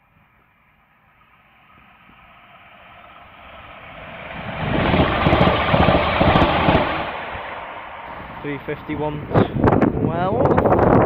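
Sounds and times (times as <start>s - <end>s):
train wheels rumbling on rails: 0.8s - 11.0s.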